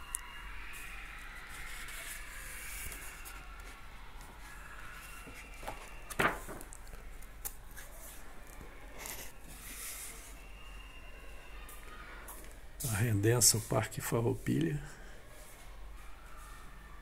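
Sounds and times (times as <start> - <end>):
paper pages rustling: 1.5 - 10.4.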